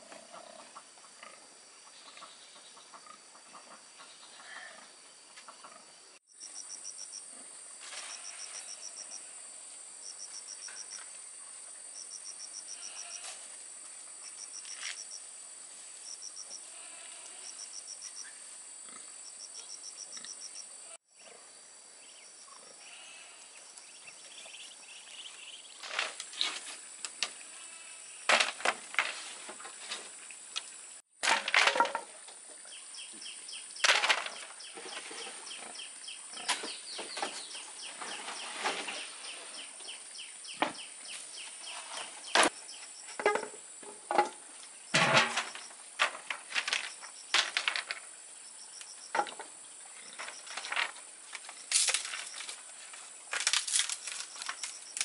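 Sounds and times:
insects droning: 0.0 - 55.0
insect rapid chirps: 0.3 - 31.1, 32.1 - 55.0
loud crackling and snapping: 53.3 - 55.0.

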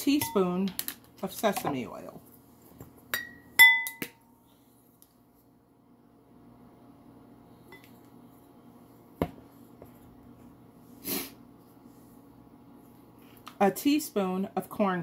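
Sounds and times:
spoon knocking glass bowl: 3.1 - 4.2.

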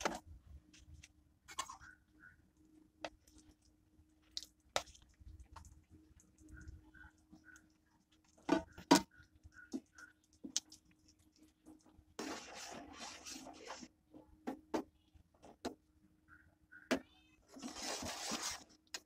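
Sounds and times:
spoon scraping and swishing: 12.2 - 13.9, 17.5 - 18.8.

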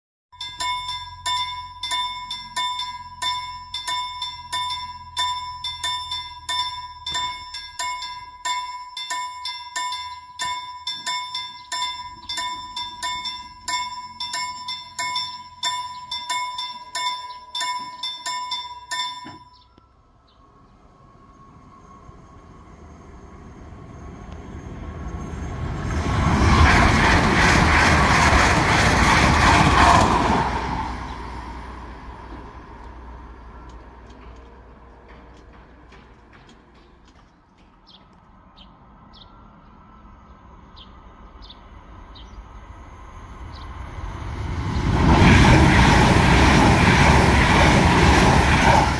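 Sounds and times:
level crossing bell ringing: 0.4 - 19.8
train passing loudly: 0.4 - 48.9.

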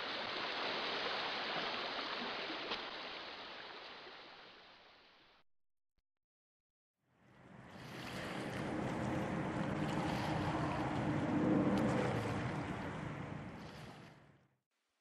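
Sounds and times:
wind and rushing water: 0.0 - 5.4, 7.2 - 14.4.

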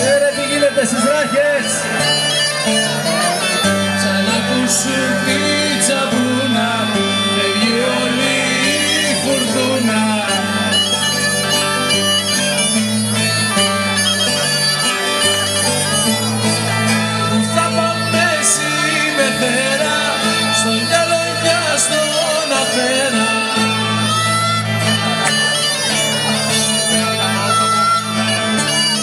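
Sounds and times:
folk band playing dance tune: 0.0 - 29.0.

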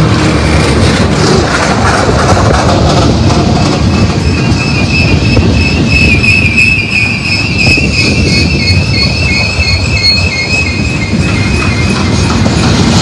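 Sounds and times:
steel wheels rumbling on rail: 0.0 - 13.0
high-pitched wheel squeal: 3.3 - 13.0.

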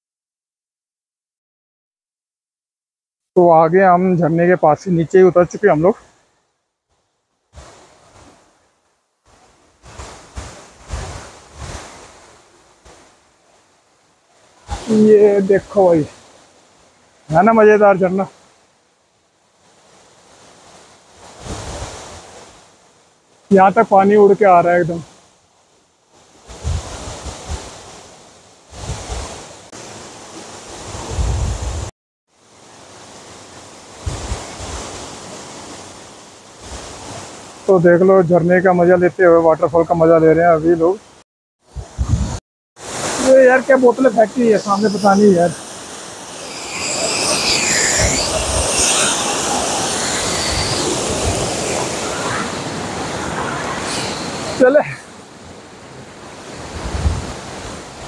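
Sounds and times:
wind buffeting microphone: 30.9 - 31.9, 34.0 - 34.8, 41.7 - 42.4, 56.6 - 57.8
waterfall rushing: 42.8 - 56.8.

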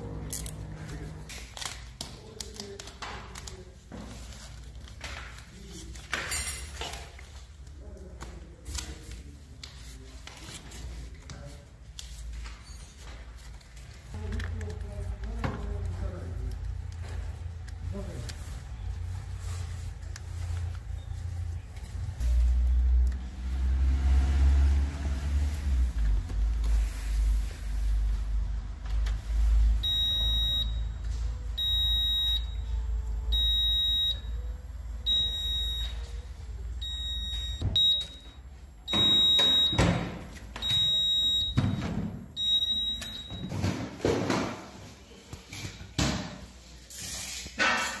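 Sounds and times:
handling and rustling noises: 0.2 - 22.9.

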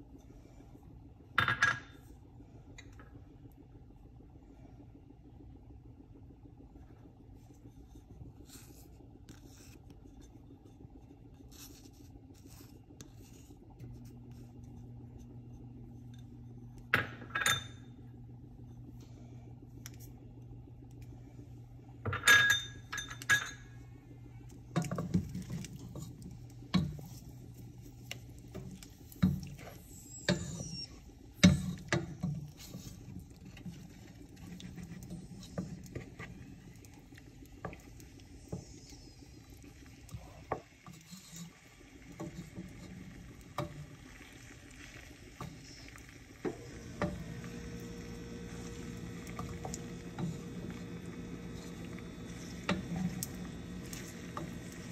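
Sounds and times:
low sizzle: 0.0 - 54.9.

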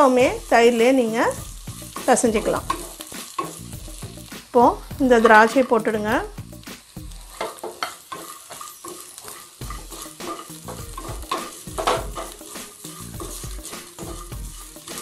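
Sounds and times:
light sizzle of oil: 0.0 - 15.0
spatula scraping pan: 0.4 - 4.2, 7.1 - 15.0.

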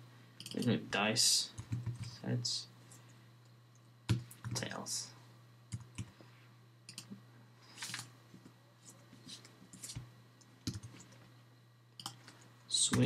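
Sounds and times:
steady low hum: 0.0 - 13.0
keyboard typing clicks: 0.4 - 0.7, 6.9 - 7.2, 10.6 - 11.0, 12.0 - 12.2.

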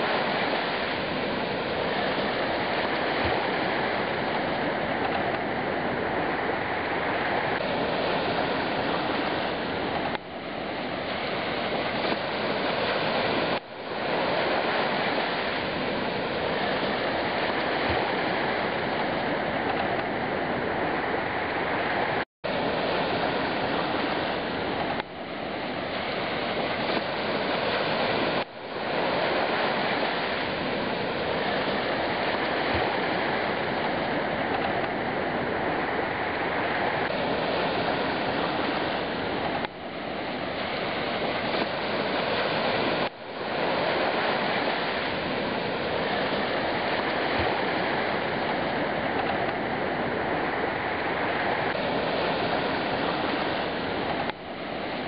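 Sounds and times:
sea surf washing on beach: 0.0 - 55.0.

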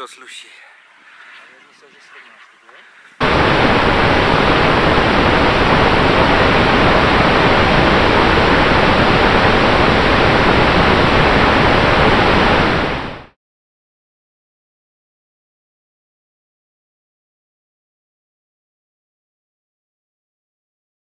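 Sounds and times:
rushing airflow over microphone: 1.0 - 13.4.

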